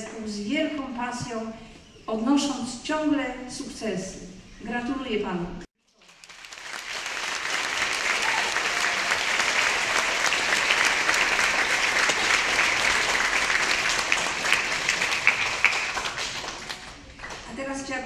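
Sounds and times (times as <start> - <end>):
audience applauding: 5.9 - 17.5.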